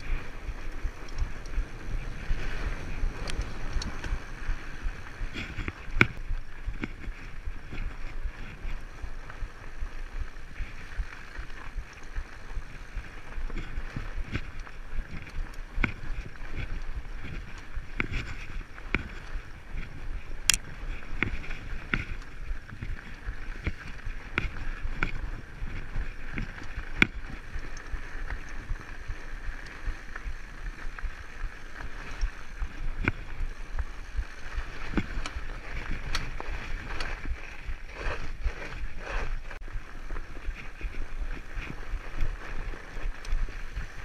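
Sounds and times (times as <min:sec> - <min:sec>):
bike tyres crunching on snow: 0:00.0 - 0:44.0
bike clicks and knocks: 0:10.7 - 0:39.2.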